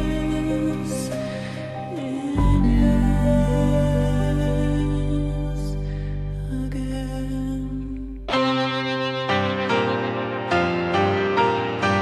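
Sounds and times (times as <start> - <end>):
sustained low bass notes: 0.0 - 8.4
slow melody of held notes: 0.0 - 12.0.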